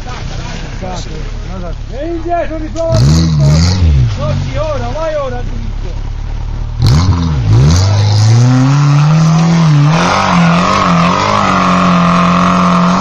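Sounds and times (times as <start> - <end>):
engine revving hard: 2.9 - 4.3, 6.8 - 13.0.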